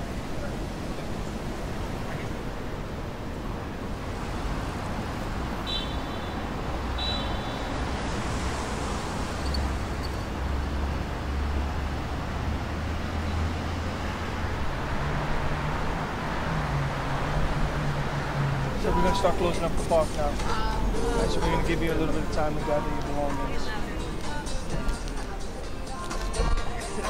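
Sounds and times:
traffic hiss: 0.0s - 26.4s
vehicle engines rumbling: 0.0s - 27.0s.

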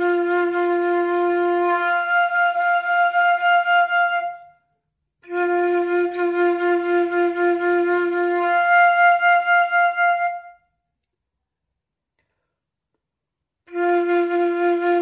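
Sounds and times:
flute playing long notes: 0.0s - 4.6s, 5.2s - 10.6s, 13.7s - 15.0s.

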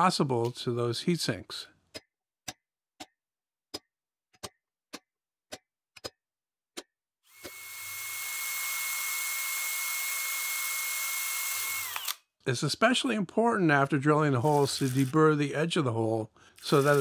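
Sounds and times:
cordless drill whining: 7.3s - 12.2s, 16.6s - 17.0s.

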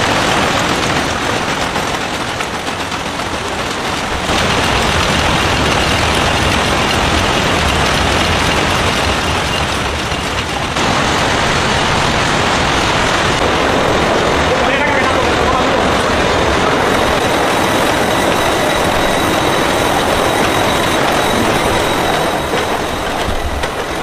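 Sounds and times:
machinery clattering: 0.0s - 24.0s.

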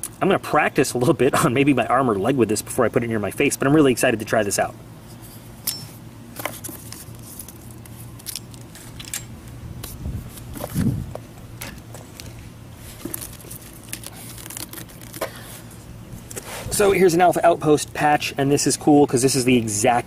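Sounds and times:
plastic crinkling and clicks: 11.6s - 15.4s.

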